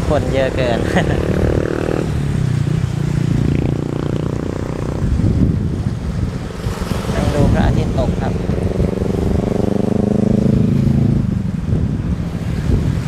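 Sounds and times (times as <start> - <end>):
wind rumbling on microphone: 0.0 - 13.0
engine drone: 6.4 - 11.6.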